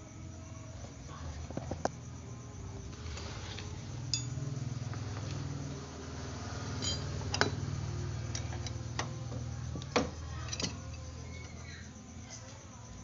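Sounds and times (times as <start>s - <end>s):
steady low hum: 0.0s - 13.0s
screwdriver clinking on metal: 4.1s - 4.4s, 6.8s - 7.5s.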